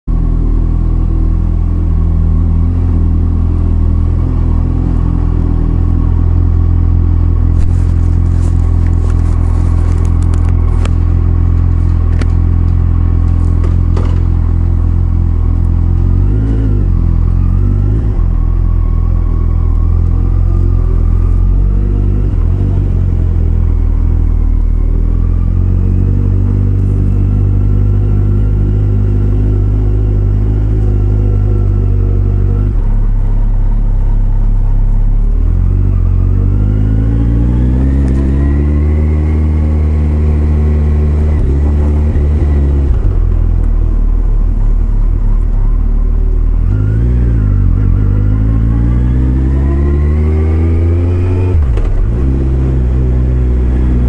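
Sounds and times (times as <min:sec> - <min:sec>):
motorcycle engine running: 0:00.1 - 0:36.6.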